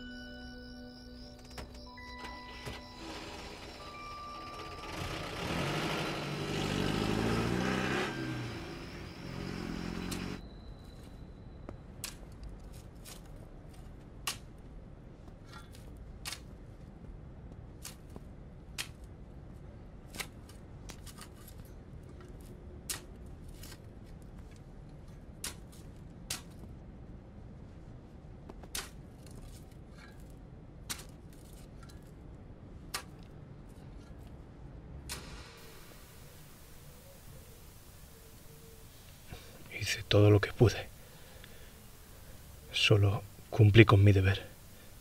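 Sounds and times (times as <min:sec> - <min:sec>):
car engine revving: 0:03.0 - 0:10.4
shovel digging stony ground: 0:28.6 - 0:32.2.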